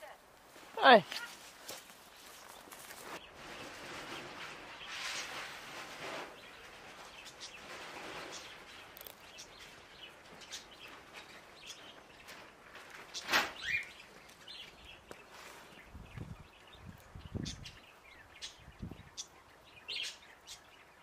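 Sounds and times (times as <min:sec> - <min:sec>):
soft shuffling: 0:00.0 - 0:03.5.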